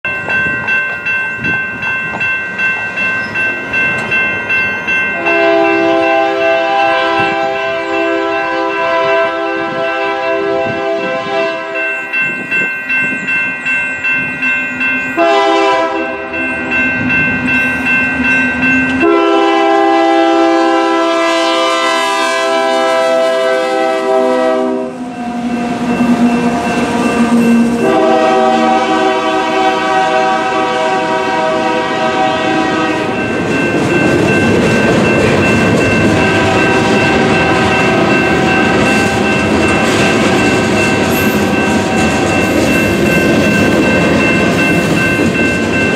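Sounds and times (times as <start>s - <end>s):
crossing signal bell ringing: 0.0s - 45.9s
train air horn blasts: 5.2s - 11.8s, 15.2s - 16.1s, 19.0s - 25.5s, 27.2s - 33.2s, 36.4s - 38.5s
freight cars rumbling and clattering: 33.1s - 45.9s.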